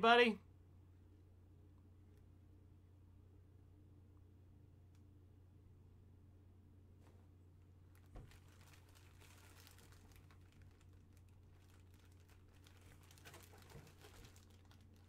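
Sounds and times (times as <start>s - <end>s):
low steady hum: 0.0s - 15.0s
plastic bag crinkling: 7.8s - 15.0s.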